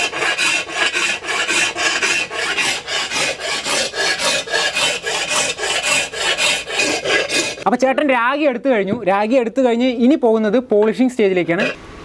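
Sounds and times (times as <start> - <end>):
hand file rasping metal: 0.0 - 7.6, 11.5 - 11.8.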